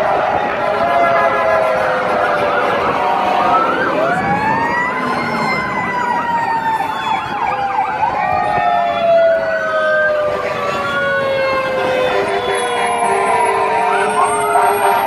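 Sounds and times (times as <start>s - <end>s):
long siren tone falling in pitch: 0.0s - 15.0s
sirens wailing and yelping: 0.0s - 15.0s.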